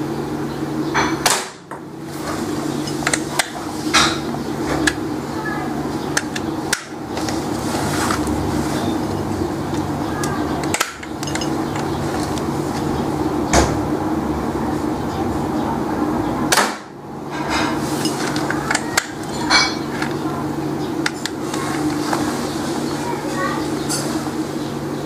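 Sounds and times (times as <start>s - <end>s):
steady low hum: 0.0s - 25.0s
marble gun firing cracks: 16.5s - 16.9s.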